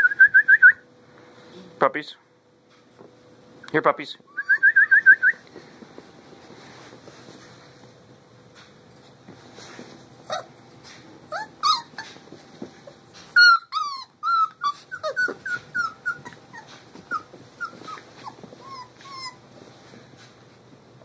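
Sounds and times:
puppies whimpering and yelping: 10.2 - 19.6.

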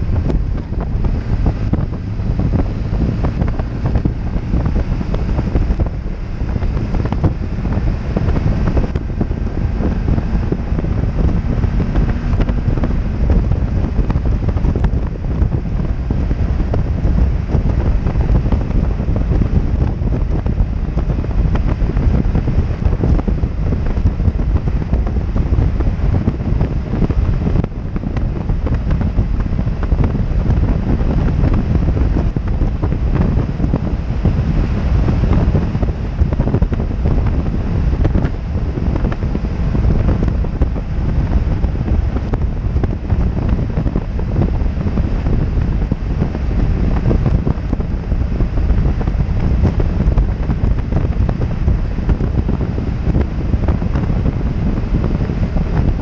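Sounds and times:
motorcycle engine running: 0.0 - 56.0
wind buffeting microphone: 0.0 - 56.0.

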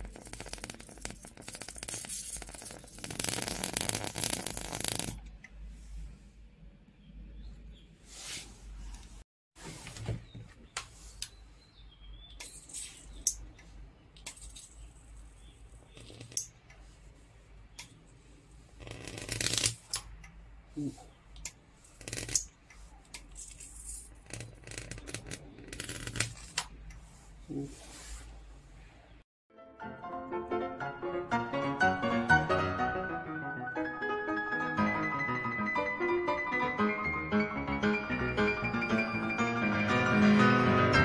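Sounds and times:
electric arc snapping and crackling: 0.0 - 5.2, 18.8 - 20.0.

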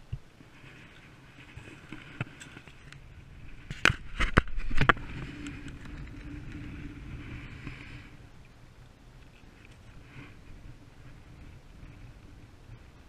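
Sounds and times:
sharp knocks and rustles: 0.0 - 7.9
steady low rumble: 0.0 - 13.0.

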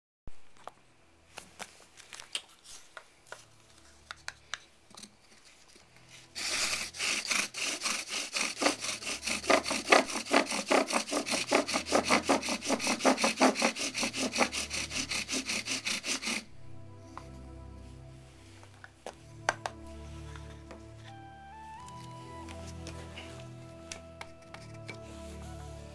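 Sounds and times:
bow drill spindle grinding: 6.3 - 16.5.

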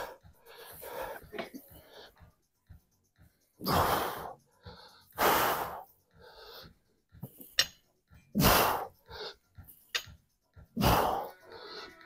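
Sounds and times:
man breathing hard: 0.0 - 2.4, 3.5 - 7.0, 8.4 - 9.6, 10.6 - 12.0.

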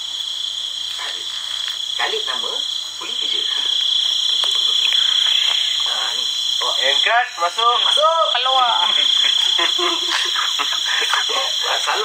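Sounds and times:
frogs croaking: 0.0 - 12.0
short low voices: 10.3 - 12.0.

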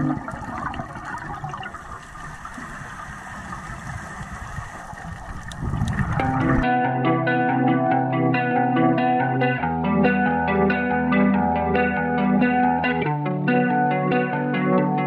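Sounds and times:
underwater regulator bubbles: 0.0 - 6.7.

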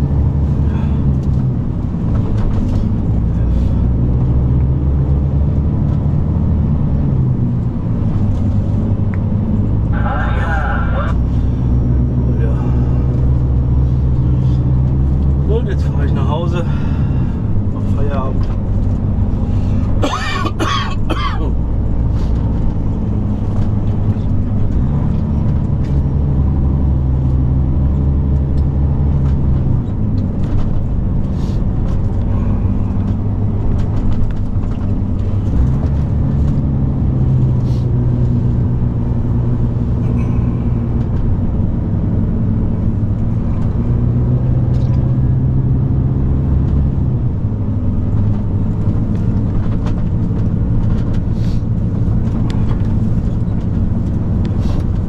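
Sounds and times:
truck diesel engine running: 0.0 - 55.0
cab clicks and rattles: 22.3 - 37.2, 46.6 - 55.0.

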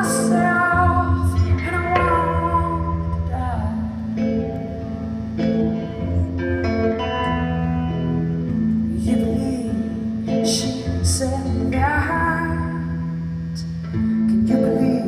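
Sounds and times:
woman singing: 0.0 - 4.2, 8.9 - 15.0
electric guitar chords: 0.0 - 15.0.

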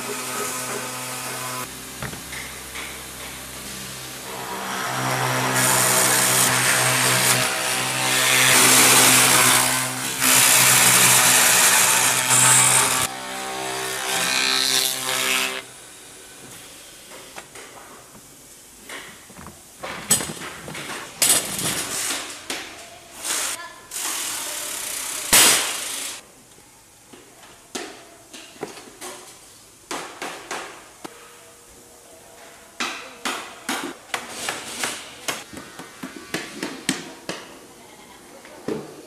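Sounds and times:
sharp knocks and clatters: 18.9 - 22.7.

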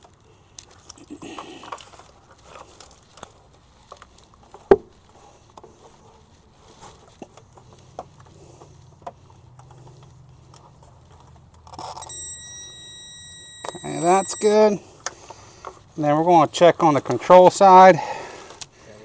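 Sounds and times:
faint steady hum: 0.0 - 16.0
probe clicking and scraping: 6.9 - 15.9
high-pitched beep: 12.0 - 14.8.

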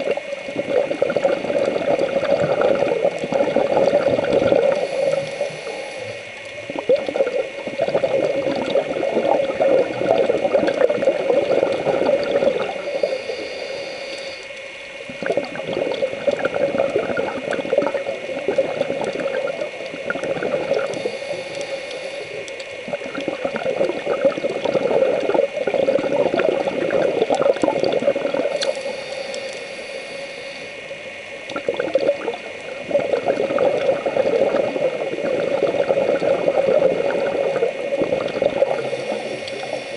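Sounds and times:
bubbling exhalation: 0.0 - 13.2, 15.1 - 29.0, 31.5 - 39.9
diver breathing through regulator: 3.5 - 6.4, 11.6 - 14.6, 20.3 - 22.6, 28.4 - 30.8, 38.4 - 39.9.

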